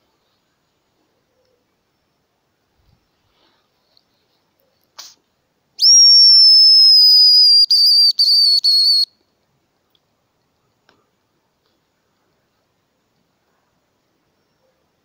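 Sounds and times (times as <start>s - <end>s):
bird call whistle: 5.8s - 9.1s.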